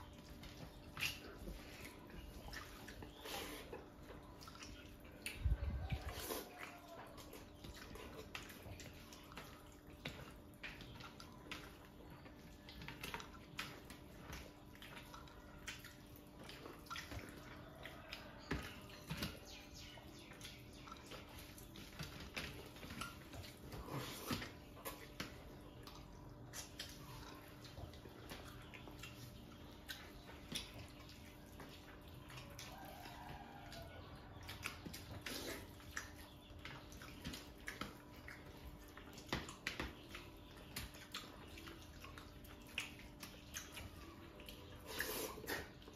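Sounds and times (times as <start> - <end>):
chewing and lip smacks: 0.0 - 45.9
hands squelching food: 0.0 - 45.9.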